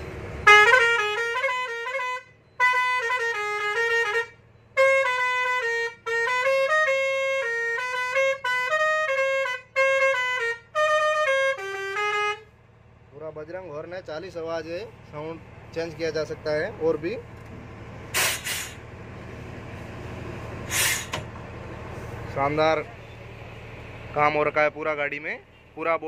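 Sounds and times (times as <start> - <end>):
musical truck horn melodies: 0.3 - 12.7.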